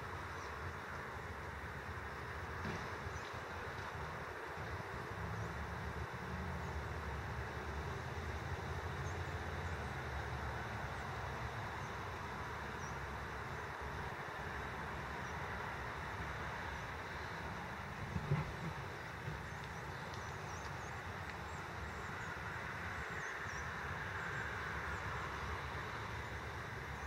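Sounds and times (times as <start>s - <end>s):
wind rumble on microphone: 17.5s - 22.7s.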